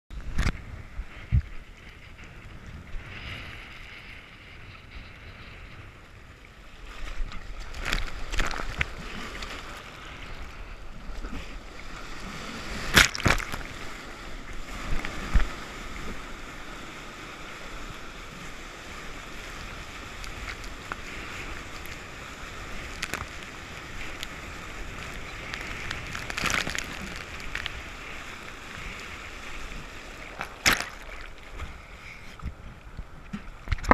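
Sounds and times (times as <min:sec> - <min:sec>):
surf rushing and fizzing: 0:00.4 - 0:33.9
sharp water splashes: 0:12.7 - 0:13.8, 0:22.7 - 0:28.2, 0:30.2 - 0:31.5.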